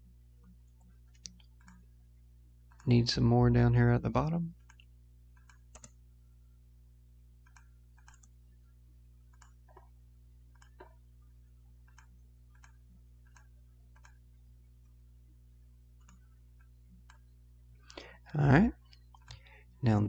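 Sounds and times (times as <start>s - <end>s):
low electrical hum: 0.0s - 20.0s
computer mouse clicks: 0.4s - 1.9s, 4.6s - 6.0s, 7.4s - 8.4s, 9.3s - 9.9s, 10.5s - 11.0s, 11.8s - 14.2s, 16.0s - 17.3s.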